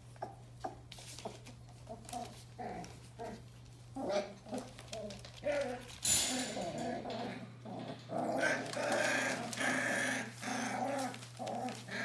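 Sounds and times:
newspaper rustling: 0:08.5 - 0:12.0.

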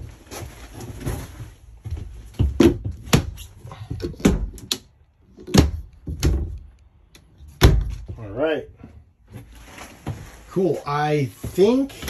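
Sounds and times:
sharp knocks and thumps: 0:01.9 - 0:04.7.

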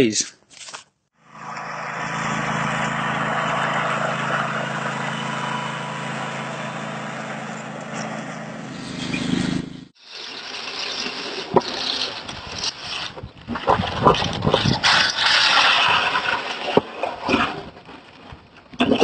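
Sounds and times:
truck engine running: 0:01.2 - 0:10.0.

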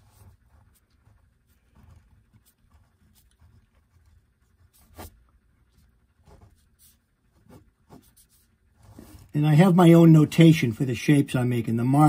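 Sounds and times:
pen scratching on paper: 0:00.0 - 0:09.3.

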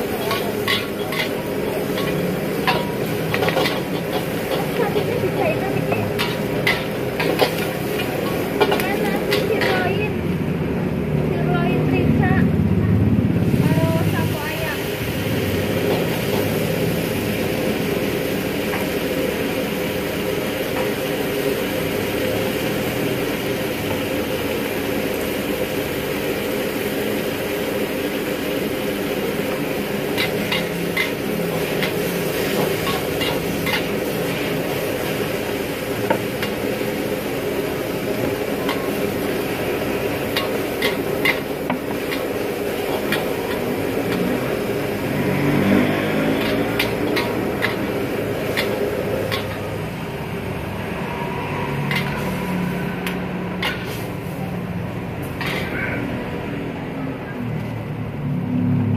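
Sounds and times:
metal ladles scraping a wok: 0:00.0 - 0:10.1, 0:15.3 - 0:17.4, 0:28.1 - 0:54.4, 0:55.2 - 0:55.9
vegetables sizzling in a wok: 0:00.0 - 0:12.4, 0:13.2 - 0:57.0.

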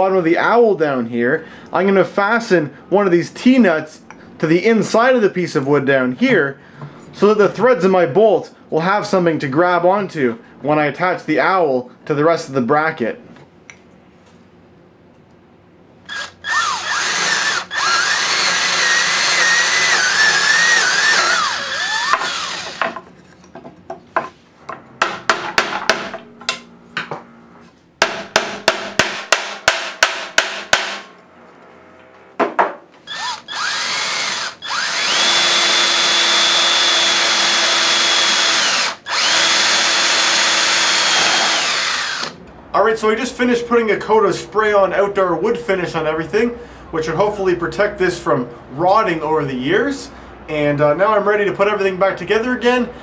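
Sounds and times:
cordless drill boring into wood: 0:16.1 - 0:22.8, 0:33.1 - 0:42.4.

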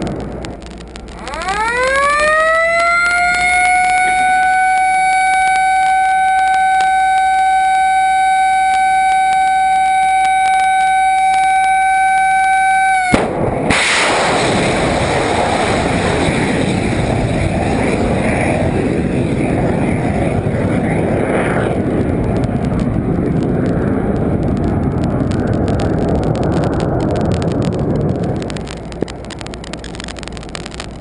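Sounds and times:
siren-like high tone: 0:01.1 - 0:13.2
missile launch rushing roar: 0:13.1 - 0:28.9.

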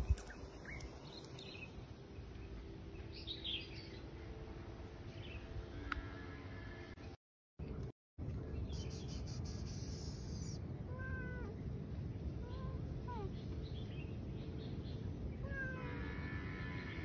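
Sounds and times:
cat meowing: 0:10.4 - 0:11.6.

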